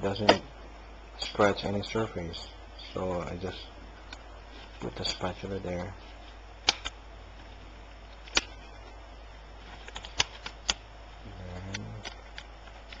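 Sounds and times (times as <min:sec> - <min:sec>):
sharp plastic clicks: 0:06.6 - 0:07.0, 0:08.2 - 0:08.6, 0:09.8 - 0:10.8.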